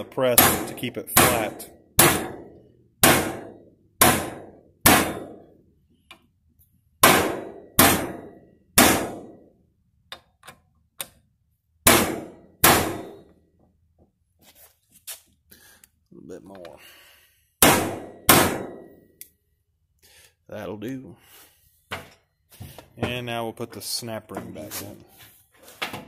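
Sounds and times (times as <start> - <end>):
hammer striking metal bearing: 0.3 - 5.5, 7.0 - 9.5, 11.8 - 13.3, 17.6 - 19.1.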